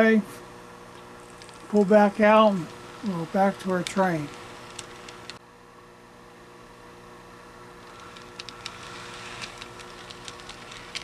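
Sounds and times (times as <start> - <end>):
model train motor hum: 1.2 - 5.4, 7.8 - 11.0
wheels clicking over rail joints: 1.2 - 5.4, 7.8 - 11.0.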